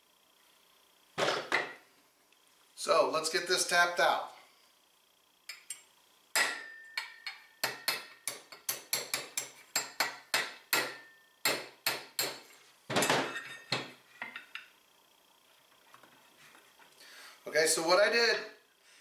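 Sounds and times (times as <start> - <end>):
hammer tapping metal punch: 6.4 - 12.4.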